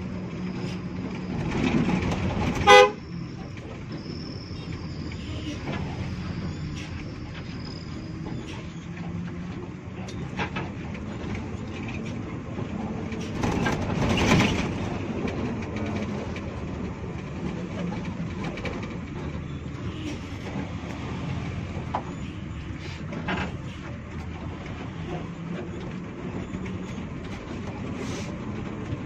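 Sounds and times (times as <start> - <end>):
bus engine drone: 0.0 - 29.0
body rattles and ticks: 8.1 - 29.0.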